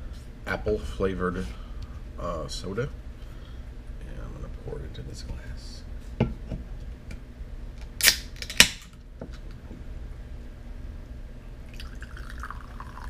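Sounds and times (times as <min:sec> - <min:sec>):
soda can opening hiss and snap: 0:07.9 - 0:08.8
soda fizzing into a glass: 0:11.7 - 0:13.0.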